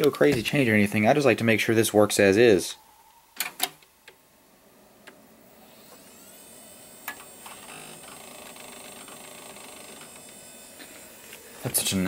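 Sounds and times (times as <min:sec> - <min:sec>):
hard drive whine: 0:02.4 - 0:12.0.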